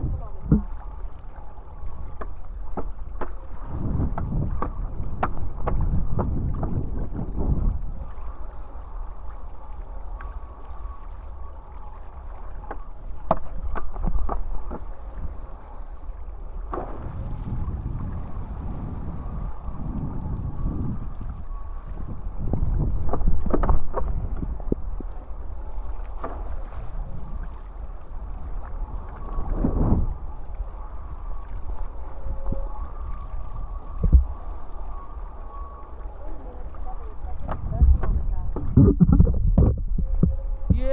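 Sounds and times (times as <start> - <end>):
wind gusting over microphone: 0.0 - 0.8, 3.5 - 8.2, 16.8 - 25.2, 28.2 - 30.5, 32.2 - 35.0, 37.0 - 40.9
water splashing: 35.8 - 40.9.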